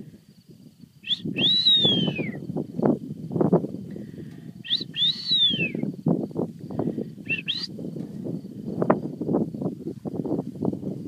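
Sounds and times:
gliding high whistles: 1.0s - 2.4s, 4.6s - 5.9s, 7.2s - 7.8s.

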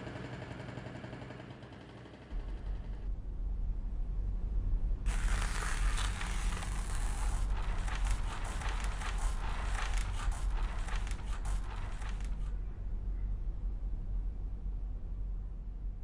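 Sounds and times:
steady low hum: 2.3s - 16.0s
pencil scratching on paper: 5.1s - 12.5s.

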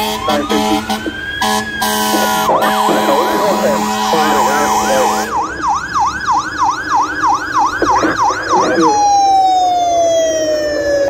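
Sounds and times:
fire engine siren: 0.0s - 11.0s.

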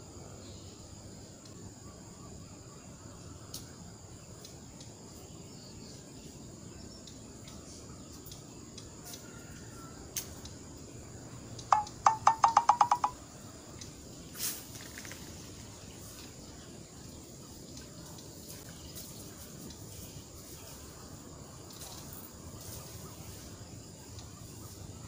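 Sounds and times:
insects droning: 0.0s - 25.0s
sharp pitched clicks: 11.6s - 13.2s.

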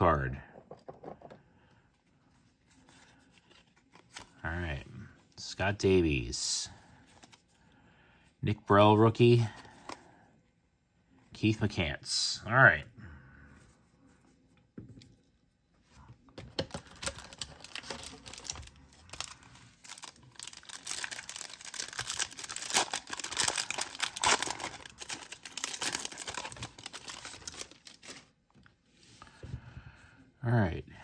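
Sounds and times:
foil wrapper tearing and crinkling: 16.7s - 28.3s.

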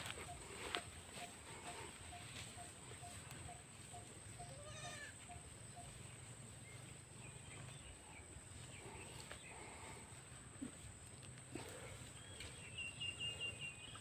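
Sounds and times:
goat bleating: 4.3s - 5.4s.

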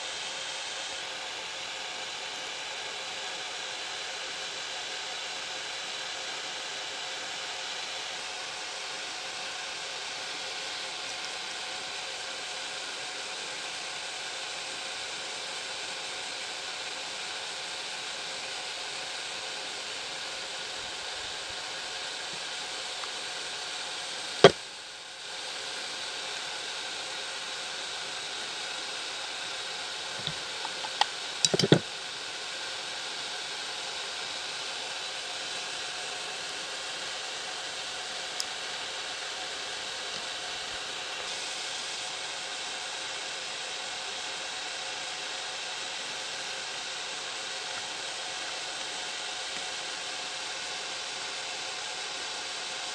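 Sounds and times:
steady background hiss: 0.0s - 52.9s
tools clicking and tapping: 30.2s - 31.8s.

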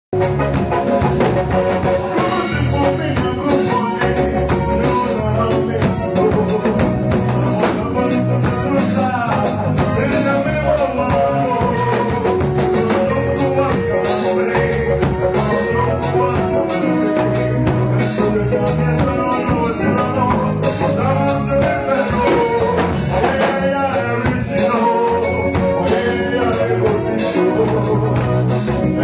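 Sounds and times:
drum kit: 0.1s - 29.0s
electric guitar: 0.1s - 29.0s
keyboard: 0.1s - 29.0s
man singing into microphone: 1.5s - 29.0s.

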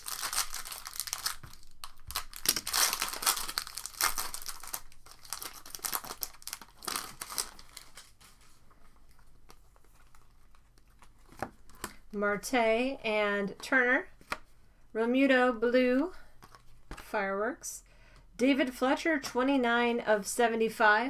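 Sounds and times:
card wrappers tearing and crinkling: 0.0s - 12.0s.

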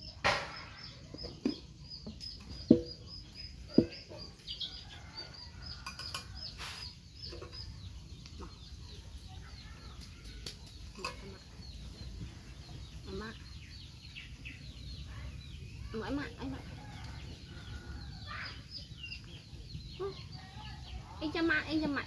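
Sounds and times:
chickens clucking: 0.0s - 9.2s
sharp knocks: 2.6s - 3.0s.

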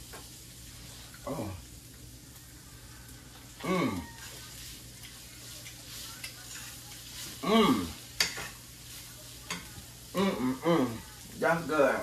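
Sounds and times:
meat sizzling in a skillet: 0.0s - 12.0s
spatula stirring: 3.5s - 12.0s.

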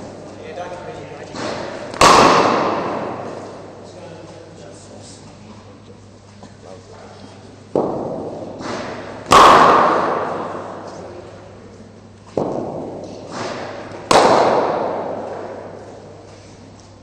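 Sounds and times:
cricket ball knocks echoing: 12.3s - 15.8s.

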